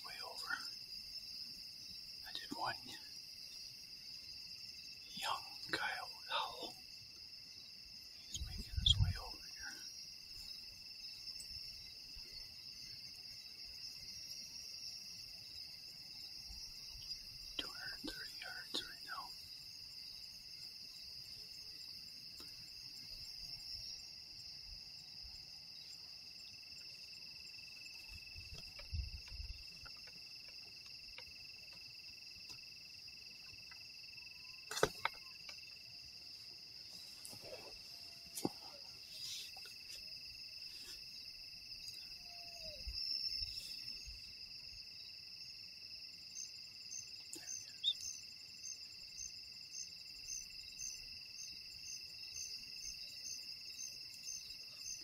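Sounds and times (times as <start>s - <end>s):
chorus of night insects: 0.0s - 55.0s
pulsing insect call: 0.0s - 55.0s.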